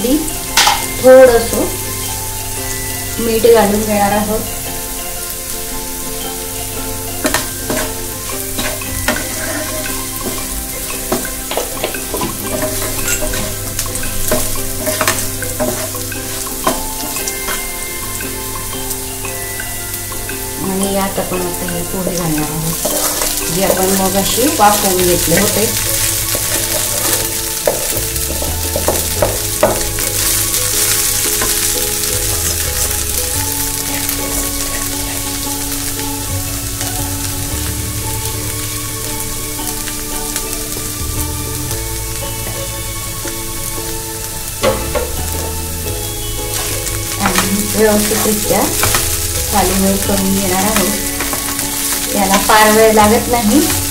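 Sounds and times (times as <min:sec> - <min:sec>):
food sizzling in oil: 0:00.0 - 0:53.9
wooden spatula scraping a pan: 0:07.2 - 0:17.7, 0:22.5 - 0:36.1, 0:44.6 - 0:53.9.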